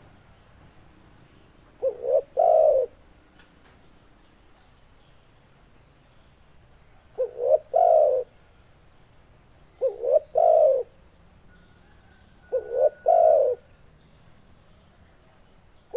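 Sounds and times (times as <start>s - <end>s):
dove cooing: 1.8s - 3.0s, 7.2s - 8.4s, 9.8s - 11.0s, 11.8s - 13.7s.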